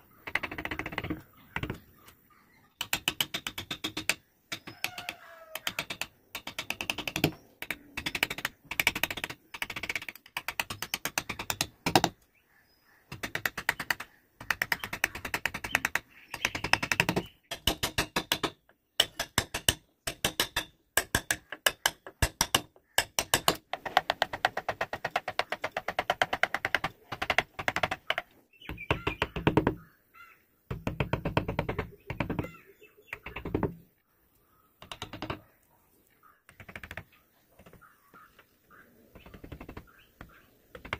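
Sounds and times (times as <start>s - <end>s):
chisel cutting wood clicks: 2.8s - 12.2s, 34.8s - 35.5s.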